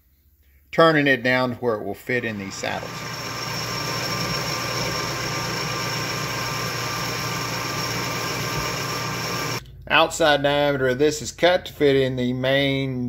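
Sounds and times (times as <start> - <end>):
metal lathe cutting: 2.3 - 9.6.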